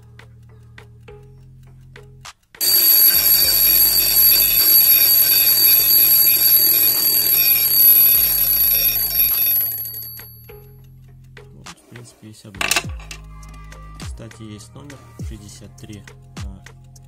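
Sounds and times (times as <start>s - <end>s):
clock ticking: 2.6s - 10.4s
clock alarm bell ringing: 2.6s - 10.5s.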